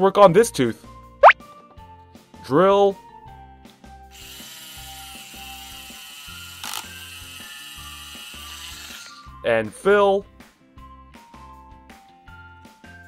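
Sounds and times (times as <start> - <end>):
plastic toy drill ratcheting: 4.2 - 9.3.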